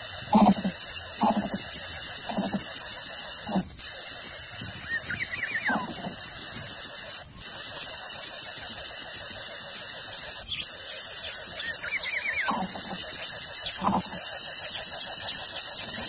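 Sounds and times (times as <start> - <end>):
loud high-pitched hiss: 0.0 - 16.0
bird nestling squealing: 4.8 - 6.1, 11.5 - 14.9.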